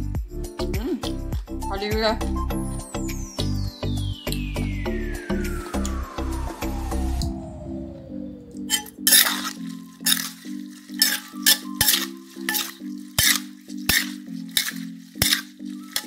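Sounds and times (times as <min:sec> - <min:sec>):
metal spoon scraping a mortar: 0:08.7 - 0:16.0.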